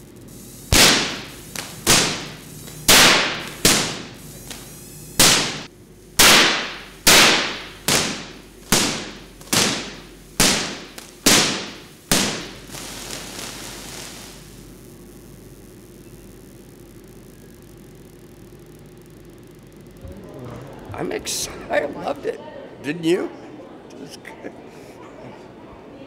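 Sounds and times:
sharp electric cracks: 0.3 - 17.0.

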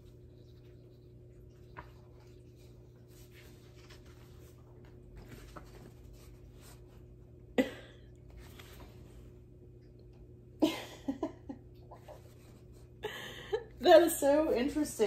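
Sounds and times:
faint steady hum: 0.0 - 15.0
paper pages rustling: 0.1 - 7.2, 8.4 - 9.2.

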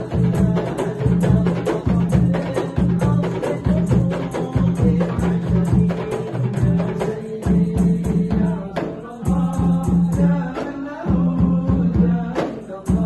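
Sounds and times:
frame drums playing: 0.0 - 13.0
man chanting: 0.0 - 13.0.

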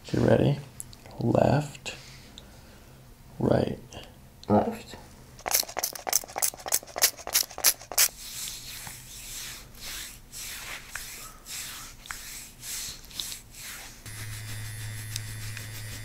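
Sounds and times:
lotion bottle squeezing: 5.4 - 8.1
hand rubbing lotion on skin: 5.4 - 16.0
steady low hum: 14.0 - 16.0.

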